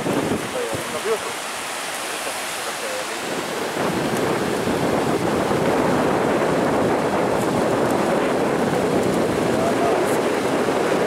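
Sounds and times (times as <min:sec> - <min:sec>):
waves breaking on a beach: 0:00.0 - 0:11.0
wind buffeting the microphone: 0:00.0 - 0:11.0.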